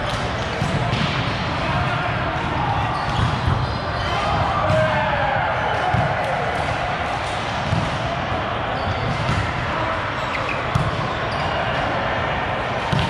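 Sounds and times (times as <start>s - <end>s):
din of voices in gym hall: 0.0s - 13.0s
volleyball thumps: 4.3s - 5.0s, 7.6s - 8.1s.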